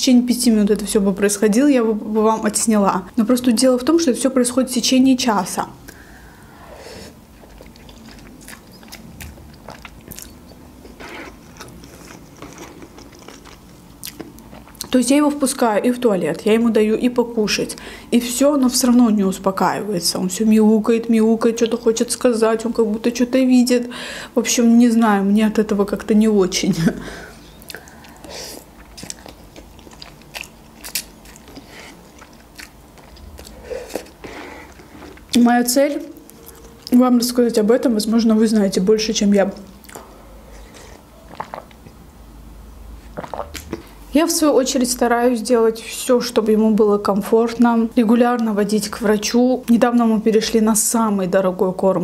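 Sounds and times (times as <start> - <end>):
chewing with wet mouth clicks: 7.4 - 15.0, 27.6 - 35.4, 36.0 - 37.0, 39.6 - 40.1, 40.7 - 42.0
slurping noodles: 9.6 - 13.6
noodle slurp: 40.6 - 41.8, 43.1 - 43.8.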